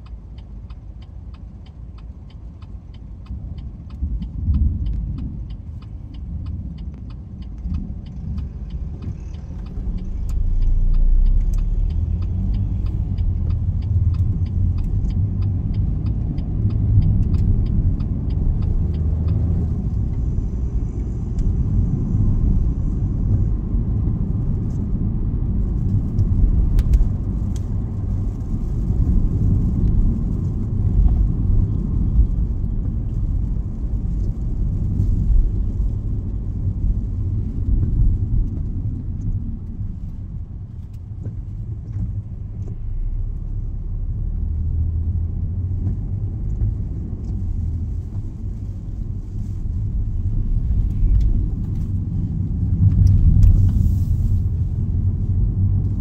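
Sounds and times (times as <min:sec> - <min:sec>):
turn signal indicator ticking: 0:00.0 - 0:53.8
engine and tyre rumble: 0:00.0 - 0:56.0.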